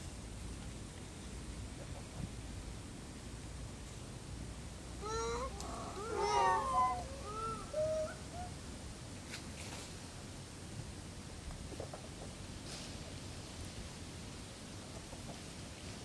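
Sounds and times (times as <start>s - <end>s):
monkeys cooing calls: 5.0s - 8.5s.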